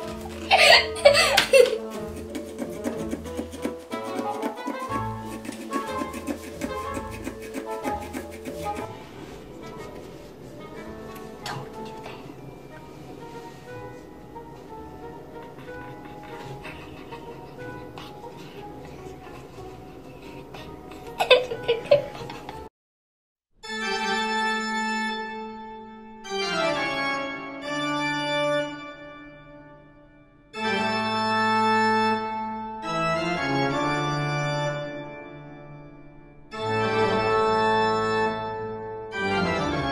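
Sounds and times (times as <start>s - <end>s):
slow music of held chords: 8.0s - 22.6s, 23.6s - 39.9s.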